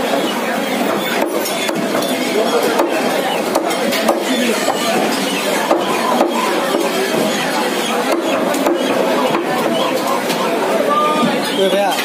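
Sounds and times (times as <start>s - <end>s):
market chatter: 0.0s - 12.0s
knife chopping on wooden block: 2.7s - 7.3s, 8.1s - 9.8s.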